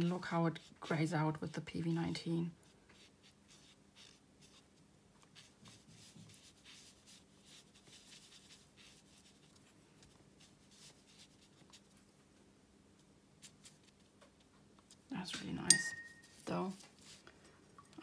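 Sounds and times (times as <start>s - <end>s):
paintbrush swishing on paper: 2.9s - 12.0s, 16.1s - 17.2s.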